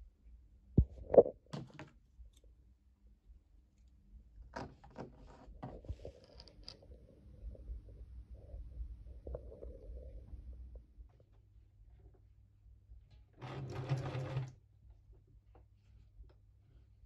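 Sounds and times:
small clicks and rustles: 4.9s - 7.0s.

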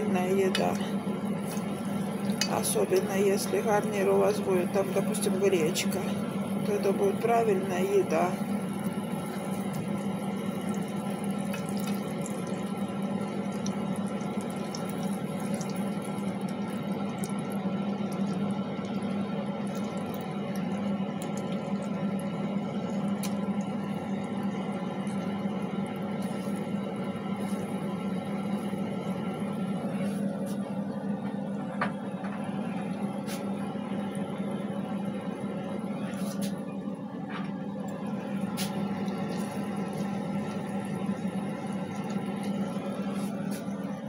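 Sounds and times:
chicken sizzling in hot oil: 5.5s - 29.8s, 38.1s - 44.0s.

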